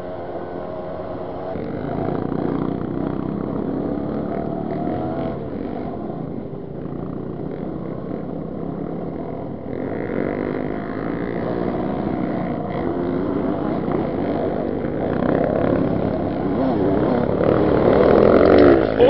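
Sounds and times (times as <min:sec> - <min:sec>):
dirt bike two-stroke engine revving: 0:00.0 - 0:19.0.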